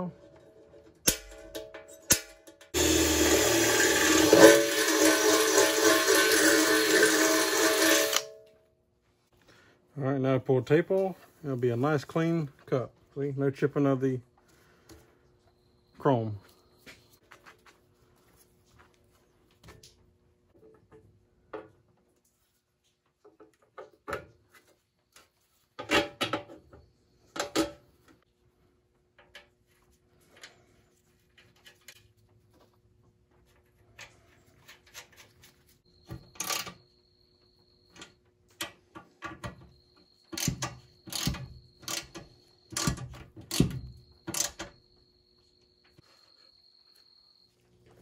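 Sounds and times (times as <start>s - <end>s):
metal parts clanking: 0.0s - 8.4s.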